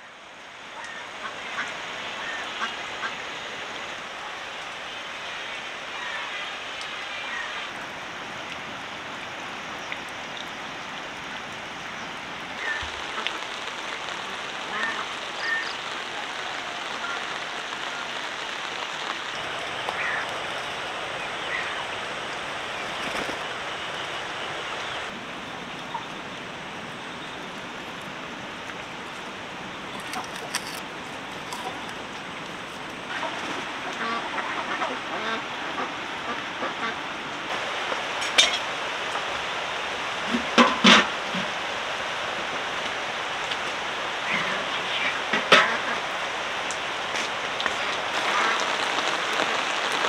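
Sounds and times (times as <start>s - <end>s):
rain hiss: 0.0s - 50.0s
poultry calling: 14.6s - 18.0s, 19.5s - 25.1s.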